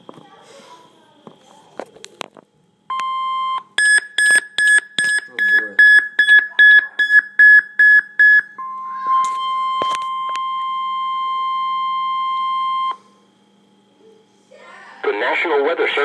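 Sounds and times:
steady warning alert tone: 3.0s - 13.0s
rapid high beeping: 3.1s - 10.3s.

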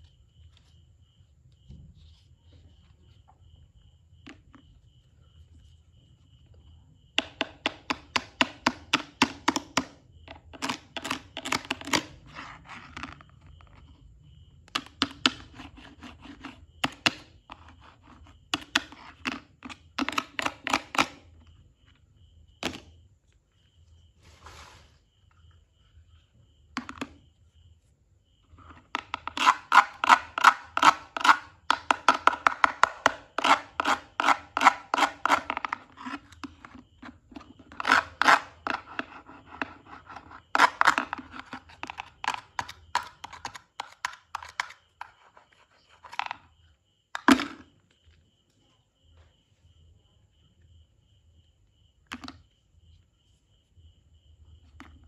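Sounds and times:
plastic knife scraping plastic: 7.2s - 14.0s, 14.7s - 21.2s, 28.6s - 46.4s.

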